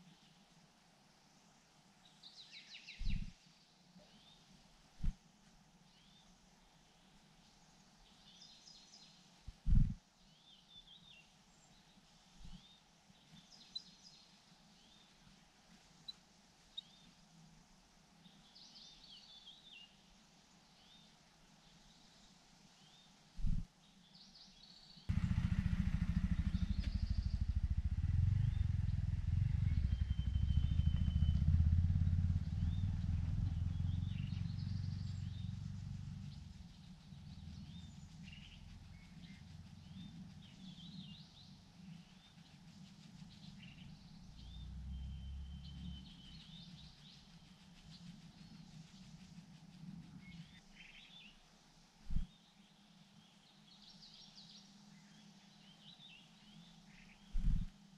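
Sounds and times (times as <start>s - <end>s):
small birds chirping: 2.0s - 5.2s, 5.8s - 17.4s, 18.1s - 57.9s
low engine rumble: 25.1s - 50.6s, 57.4s - 57.7s.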